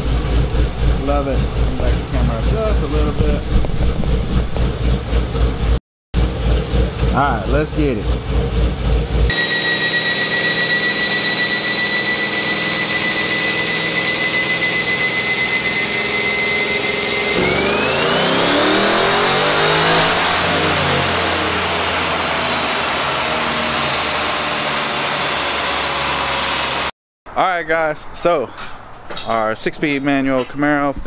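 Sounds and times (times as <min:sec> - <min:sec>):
car engine revving on a dyno: 0:00.0 - 0:26.9
high whine: 0:09.3 - 0:26.9.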